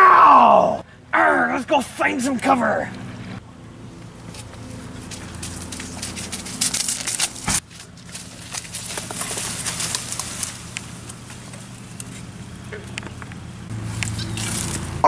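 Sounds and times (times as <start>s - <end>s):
low hum: 0.0s - 15.0s
leaves and branches rustling: 3.9s - 15.0s
footsteps running on grass: 4.2s - 12.4s.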